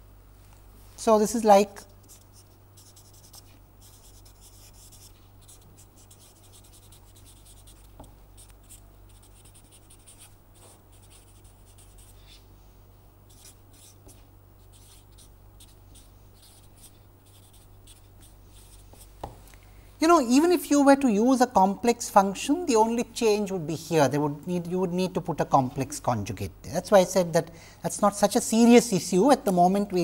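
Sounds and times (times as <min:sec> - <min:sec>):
marker pen scratching on paper: 0:02.0 - 0:12.4, 0:13.3 - 0:19.1.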